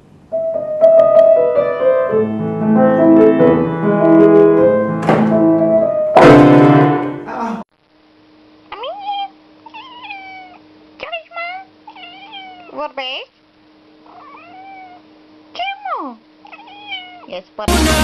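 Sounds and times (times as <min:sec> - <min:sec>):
grand piano playing: 0:00.3 - 0:07.3
sharp knock: 0:05.0 - 0:07.2.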